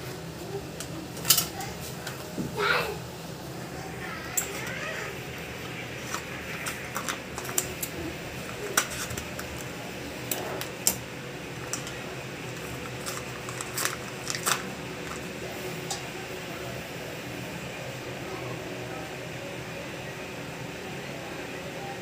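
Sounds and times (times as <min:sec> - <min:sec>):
steady low hum: 0:00.0 - 0:22.0
cardboard box and packet tearing: 0:12.5 - 0:15.3.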